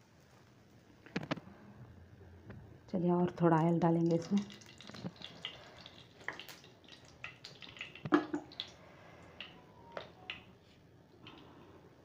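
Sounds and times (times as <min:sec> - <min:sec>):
oil crackling in a frying pan: 0:03.7 - 0:08.8.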